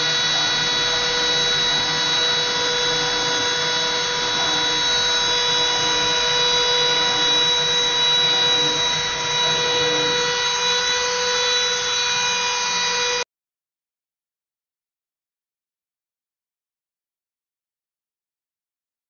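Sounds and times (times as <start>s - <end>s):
lower motor hum: 0.0s - 13.2s
spindle whining at high speed: 0.0s - 13.2s.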